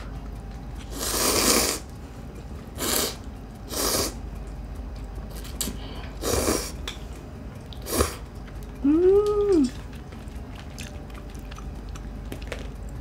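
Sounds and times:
person slurping noodles: 0.9s - 1.8s.

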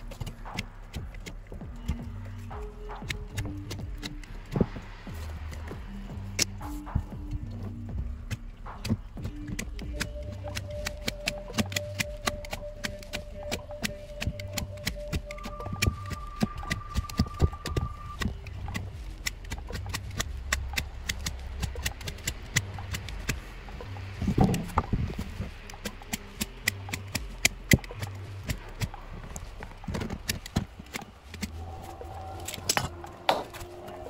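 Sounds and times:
knife shaving wood clicks: 8.3s - 23.4s, 25.6s - 32.9s.

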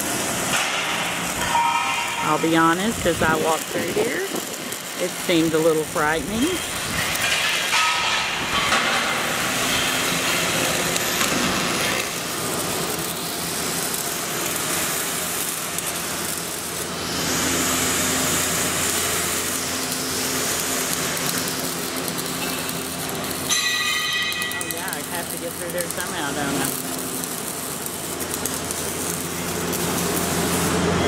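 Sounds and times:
power grinder on steel: 2.2s - 7.2s, 20.4s - 30.8s.

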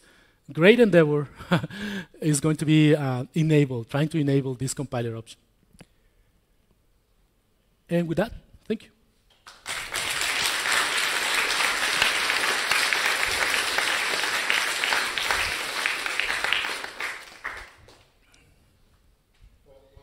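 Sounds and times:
audience applauding: 9.4s - 18.2s.

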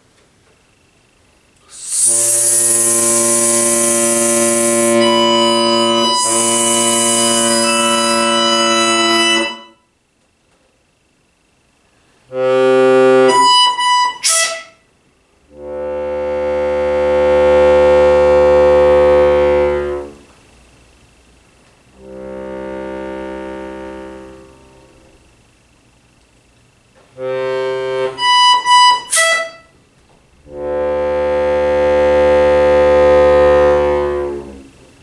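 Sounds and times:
accordion chords: 1.7s - 9.8s, 12.3s - 14.8s, 15.5s - 20.3s, 21.9s - 25.3s, 27.0s - 29.8s, 30.4s - 35.0s.

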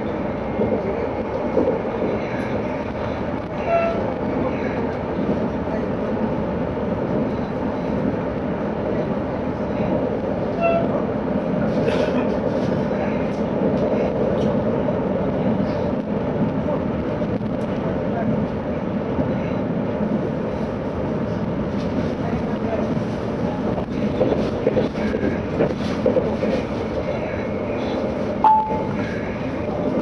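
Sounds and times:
train wheels and motors rumbling: 0.0s - 30.0s
short beeps: 28.4s - 28.9s.

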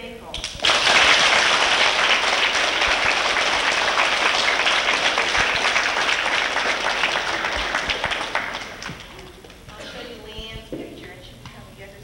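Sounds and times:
children applauding: 0.4s - 9.5s.

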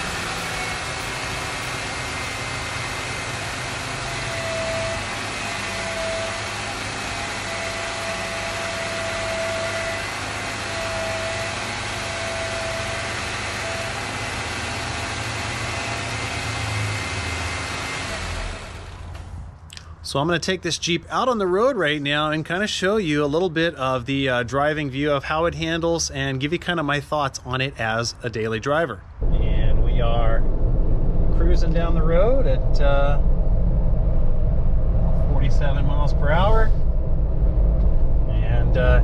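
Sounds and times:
car engine idling: 0.0s - 19.6s
steering whine: 0.0s - 19.9s, 29.2s - 39.0s.

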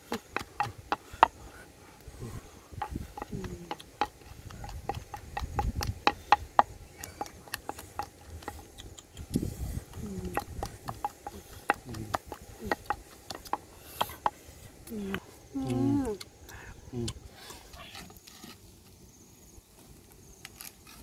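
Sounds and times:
wooden pestle pounding in mortar: 0.0s - 1.5s, 2.7s - 14.4s.

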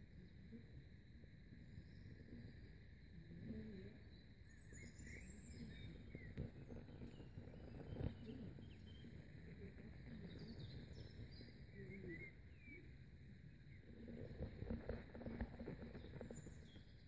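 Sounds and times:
distant birds chirping: 3.5s - 17.0s.

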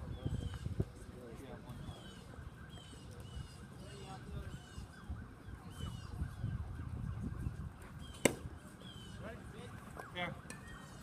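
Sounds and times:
bird chirping: 8.0s - 9.3s.

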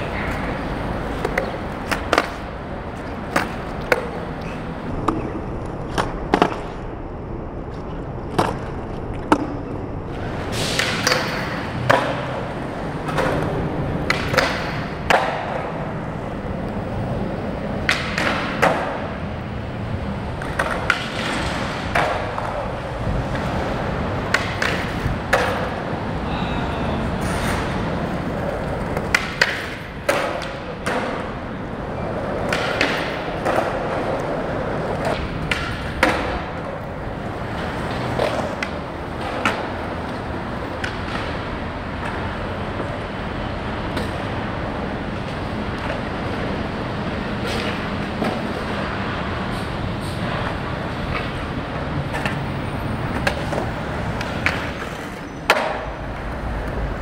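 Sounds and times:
skateboard clacks and thuds: 0.0s - 7.0s, 7.8s - 26.2s, 27.1s - 49.4s, 50.2s - 57.0s
skateboard wheels rolling on concrete: 0.0s - 57.0s.

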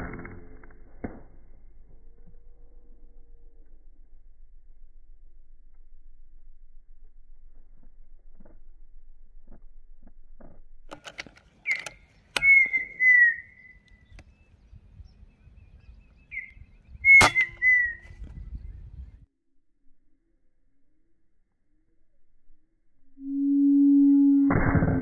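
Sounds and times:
faint low rumble: 0.0s - 10.9s, 18.0s - 25.0s
sharp click: 10.9s - 12.8s
bird whistled call: 11.6s - 18.7s.

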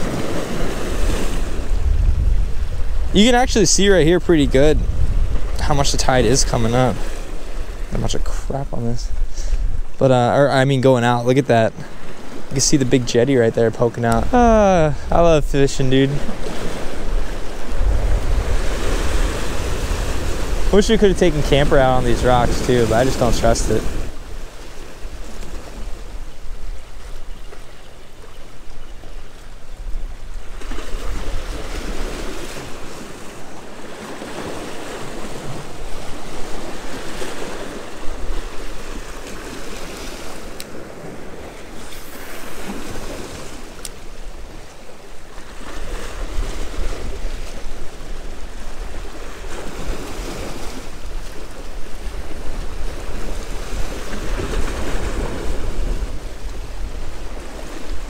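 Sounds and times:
wind buffeting microphone: 0.0s - 10.0s, 13.8s - 27.8s
waves breaking on rocks: 0.0s - 29.6s, 30.2s - 58.0s.

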